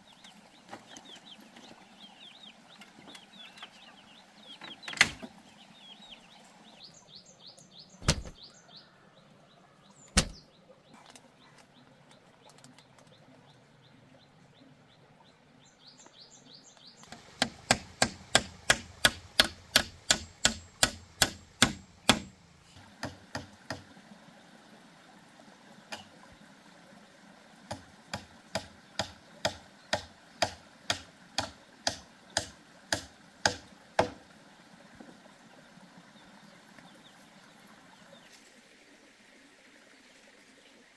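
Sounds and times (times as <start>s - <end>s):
hammer driving nails into wood: 17.4s - 22.3s.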